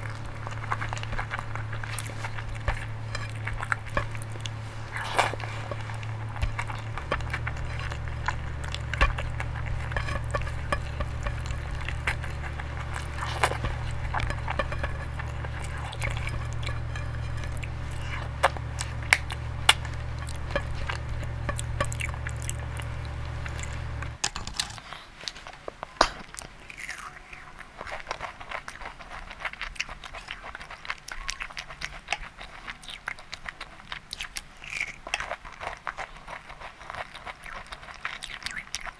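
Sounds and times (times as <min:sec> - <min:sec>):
soft chewing and biting: 0:00.0 - 0:24.2, 0:24.8 - 0:38.9
wet chewing and lip smacks: 0:00.0 - 0:24.2, 0:26.0 - 0:38.9
steady low hum: 0:00.0 - 0:24.8.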